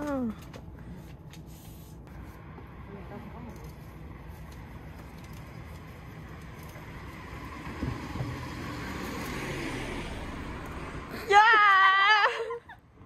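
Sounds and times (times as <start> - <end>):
traffic rumble: 0.0 - 13.0
car passing: 2.2 - 11.8.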